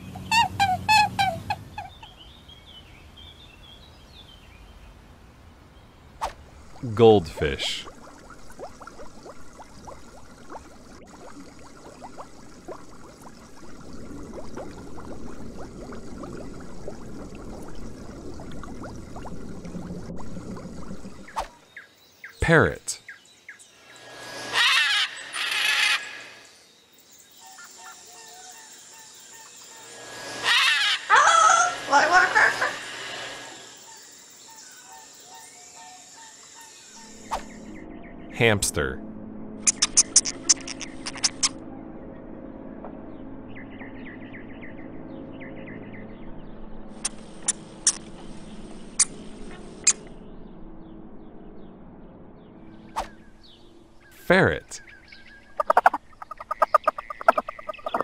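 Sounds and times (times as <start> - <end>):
macaw squawking: 24.5 - 26.2, 30.4 - 32.8, 55.6 - 58.0
sharp clicks: 39.7 - 41.6.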